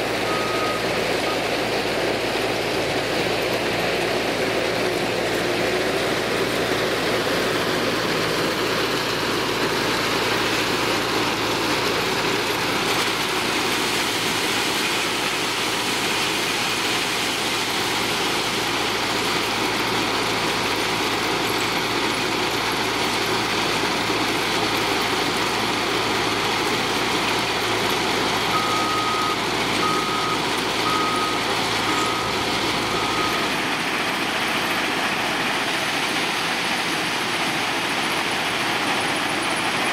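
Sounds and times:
wheel loader diesel engine: 0.0s - 39.9s
reversing alarm beeping: 0.1s - 1.7s, 28.4s - 34.1s.

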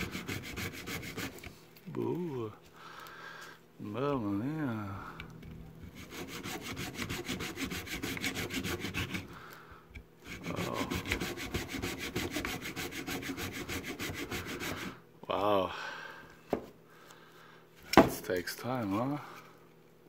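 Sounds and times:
hand saw cutting plastic: 0.0s - 1.5s, 5.9s - 9.3s, 10.2s - 15.0s.

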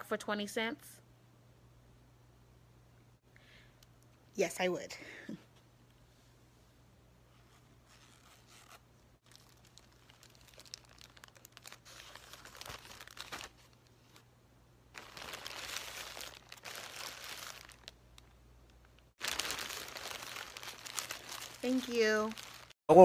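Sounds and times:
plastic bag crinkling: 9.2s - 14.2s, 14.9s - 22.8s.

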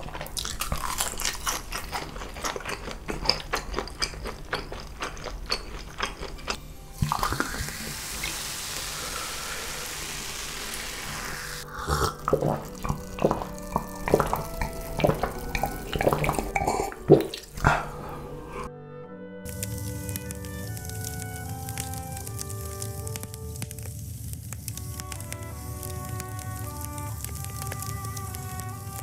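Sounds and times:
person swallowing: 7.0s - 8.0s, 11.6s - 18.7s
water pouring into a glass: 7.0s - 17.9s.

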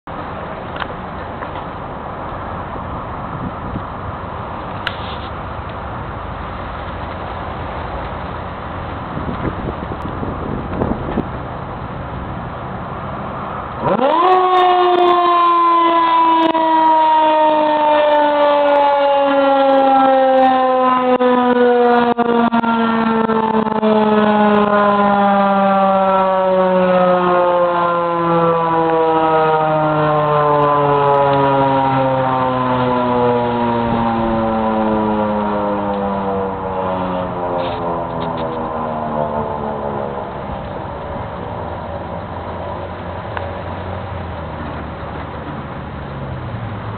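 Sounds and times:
rotating siren falling pitch: 13.8s - 43.2s.

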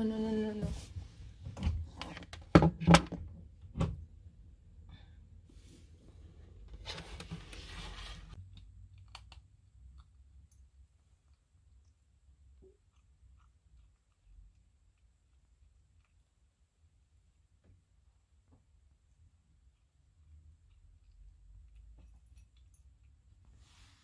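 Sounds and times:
soft rustle: 22.1s - 24.0s.

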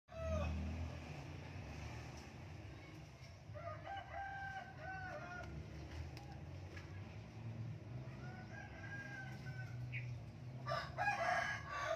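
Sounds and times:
rooster crowing: 0.1s - 0.8s, 3.6s - 5.7s, 8.0s - 10.0s, 10.6s - 11.9s.

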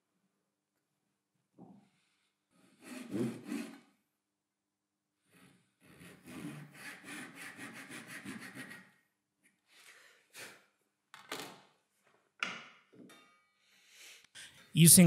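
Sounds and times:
saw cutting wood: 2.8s - 3.8s, 5.8s - 8.9s.

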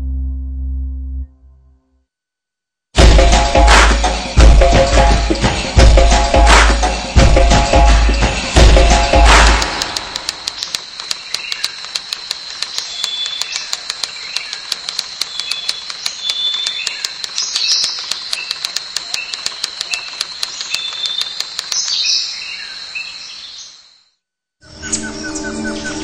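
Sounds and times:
steady high whine: 8.6s - 22.0s
rapid regular clicking: 9.0s - 22.1s
bird chirps: 10.0s - 24.0s.

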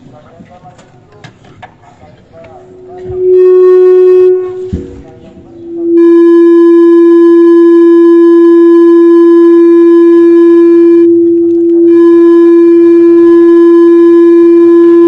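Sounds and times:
steady tone with overtones: 2.6s - 7.2s.

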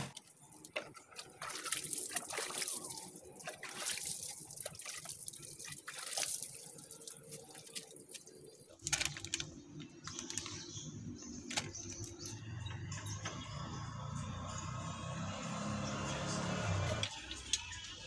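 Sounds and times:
water splashing and dripping: 0.1s - 9.5s, 16.0s - 18.0s.

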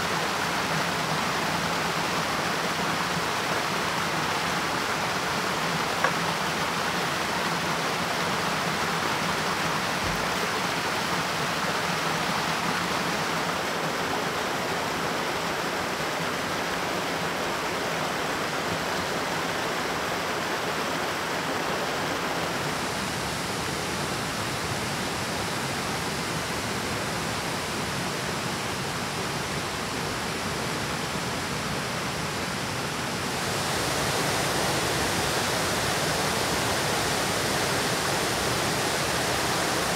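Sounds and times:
water pouring over waterfall: 33.0s - 39.9s.

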